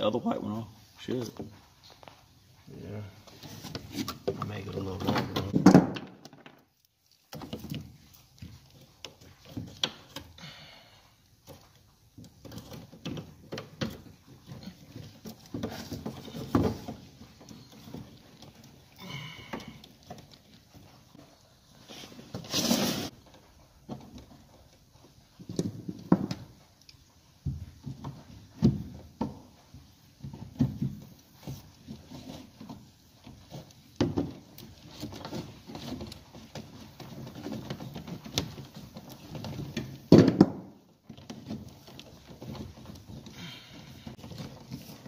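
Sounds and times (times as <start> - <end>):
cable knocking and scraping in wood: 11.4 - 45.0.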